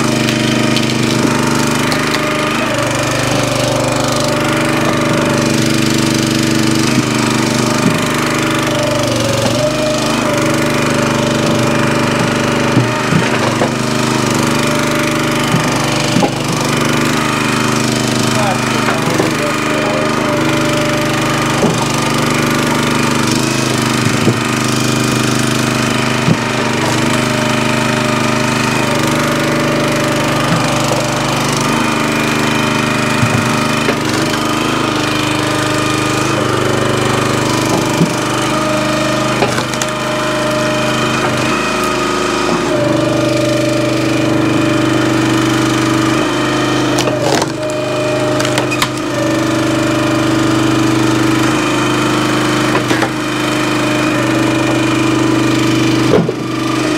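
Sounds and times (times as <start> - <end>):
small engine running: 0.0 - 56.9
wood splitting cracks: 0.0 - 56.9.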